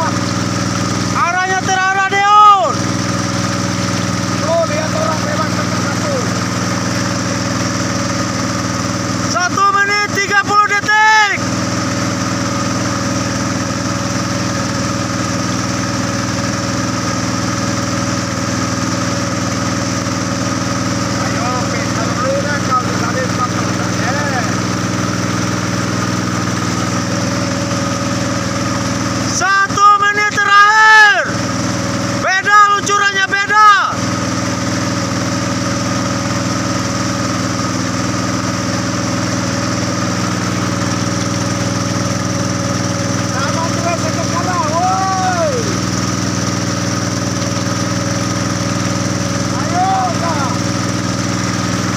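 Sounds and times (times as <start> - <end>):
boat engine running: 0.0 - 51.9.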